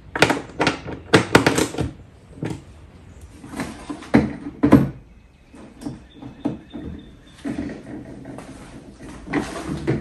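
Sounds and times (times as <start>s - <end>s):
plastic and metal hardware knocking: 0.1s - 2.6s, 4.1s - 5.0s.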